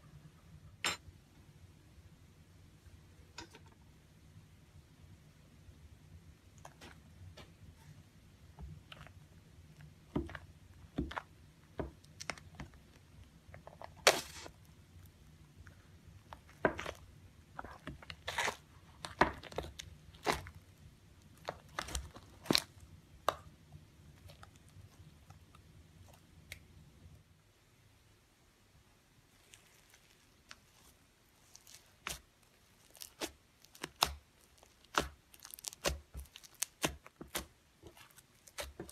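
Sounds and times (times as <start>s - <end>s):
slime crackling and popping: 29.3s - 38.9s.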